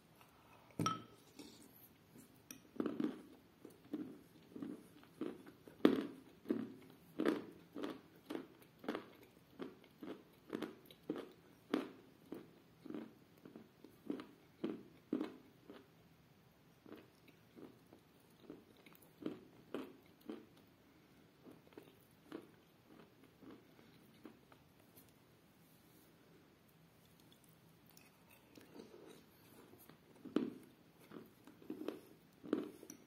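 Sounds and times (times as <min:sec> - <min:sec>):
close-up chewing: 0:02.8 - 0:15.8.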